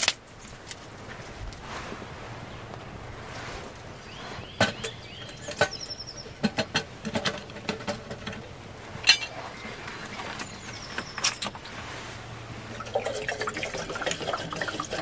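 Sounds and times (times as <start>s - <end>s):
metal cookware clinking: 4.6s - 9.4s.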